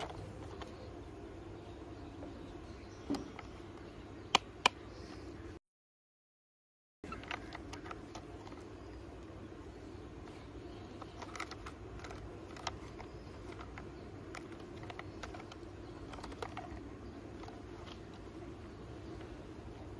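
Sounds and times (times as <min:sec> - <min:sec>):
steady low hum: 0:00.0 - 0:05.6, 0:07.0 - 0:19.9
plastic toy clicking and tapping: 0:10.9 - 0:18.2.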